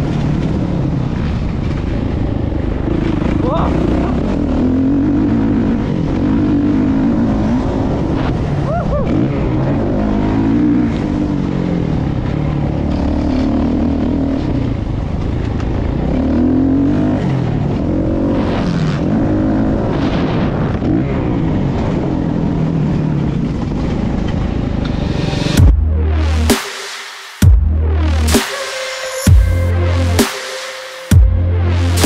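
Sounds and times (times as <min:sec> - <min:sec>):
motocross bike engine revving: 0:02.4 - 0:15.0.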